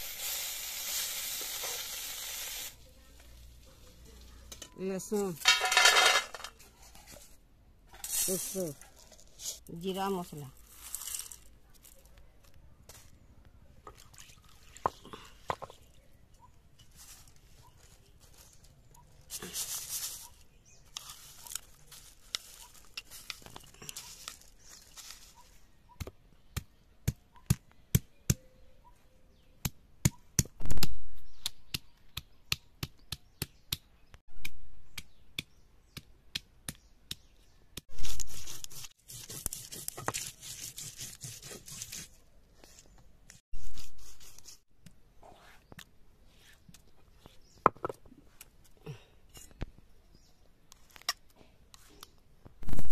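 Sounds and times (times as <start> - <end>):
stone rubbing on stone: 37.9 - 42.2.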